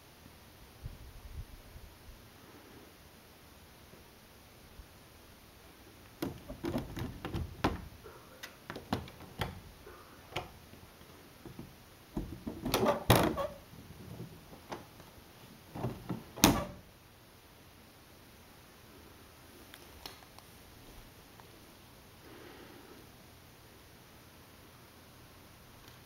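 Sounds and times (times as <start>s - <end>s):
plastic pet door flap clacking: 6.2s - 9.7s, 12.2s - 13.6s, 15.8s - 16.8s.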